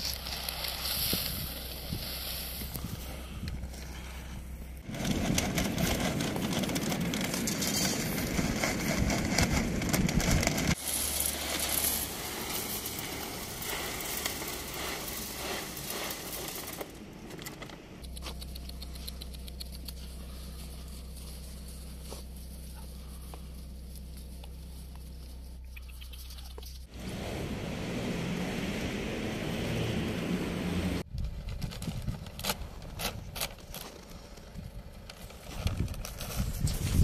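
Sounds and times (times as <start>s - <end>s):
dry kibble rattling into feeder: 5.0s - 16.9s
loud low rumbling: 26.8s - 31.2s.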